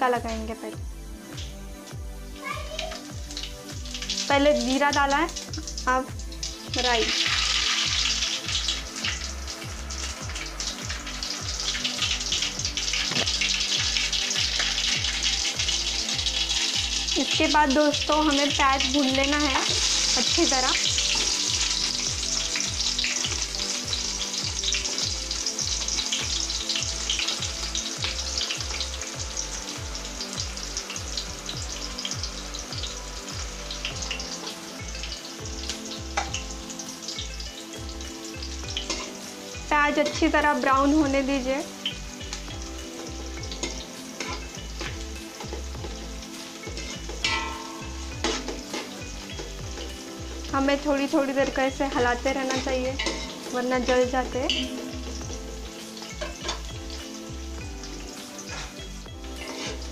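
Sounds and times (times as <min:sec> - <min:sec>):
onions sizzling in hot oil: 0:00.0 - 0:59.9
metal ladle scraping pot: 0:46.7 - 0:48.9, 0:52.5 - 0:54.8, 0:56.2 - 0:56.7, 0:59.4 - 0:59.9.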